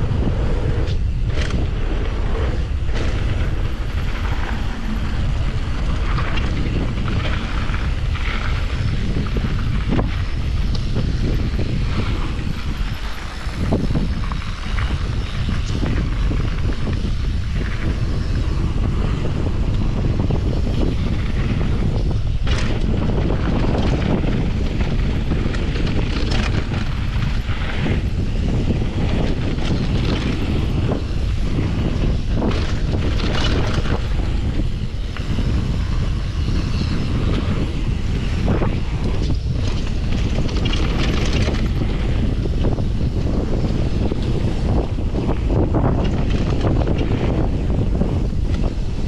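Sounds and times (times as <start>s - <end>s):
bike clattering over bumps: 0.0s - 49.0s
wind noise on microphone: 0.0s - 49.0s.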